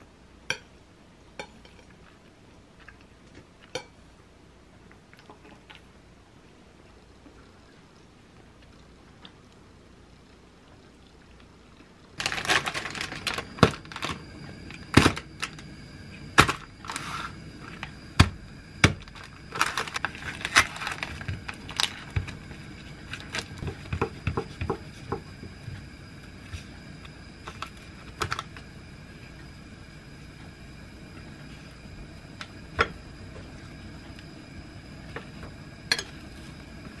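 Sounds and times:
plastic film crinkling: 12.2 - 15.6, 16.4 - 17.9, 19.0 - 23.9.

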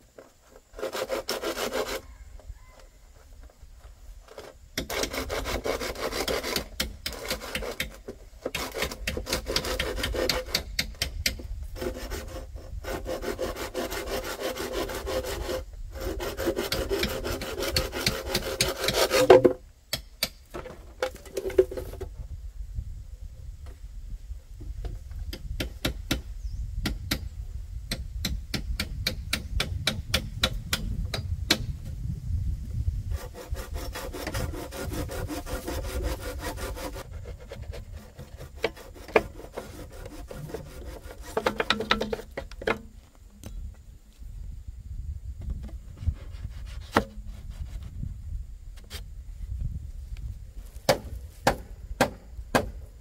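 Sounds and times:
rubbing and scraping of wood: 0.0 - 19.6, 20.2 - 22.2, 32.9 - 44.3, 45.4 - 52.8
sharp clicks and taps on bamboo: 6.1 - 11.5, 16.7 - 22.0, 24.8 - 27.3, 27.9 - 31.7, 41.2 - 43.6
knocks on bamboo: 18.0 - 22.0, 41.2 - 42.9, 50.8 - 52.8.

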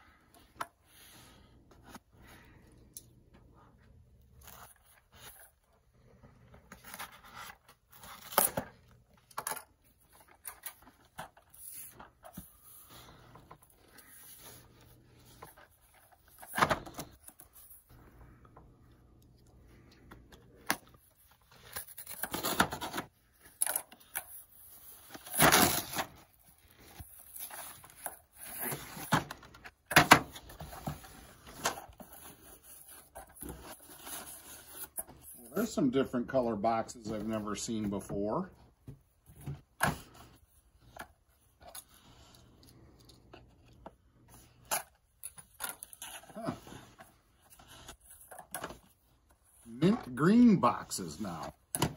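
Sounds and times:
cardboard and tape ripping: 21.5 - 23.9, 24.5 - 29.3.

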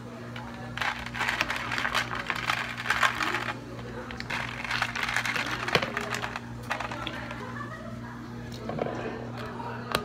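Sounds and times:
ice cubes clattering into cups: 0.4 - 7.4.

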